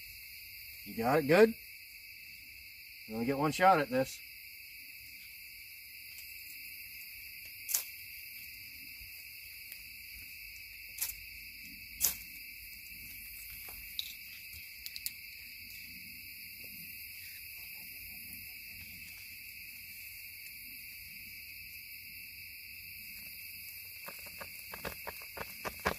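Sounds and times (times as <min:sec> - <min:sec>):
crickets trilling: 0:00.0 - 0:25.9
sharp clicks and pops: 0:24.0 - 0:25.9.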